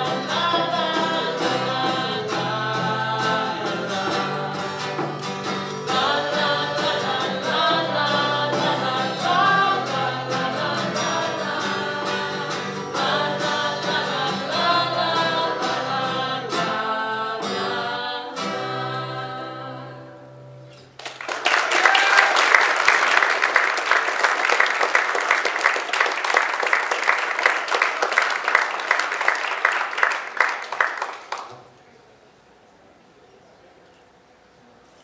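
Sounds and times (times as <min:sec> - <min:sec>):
voices singing together: 0:00.0 - 0:20.5
acoustic guitars: 0:00.0 - 0:21.0
audience applause: 0:21.0 - 0:31.7.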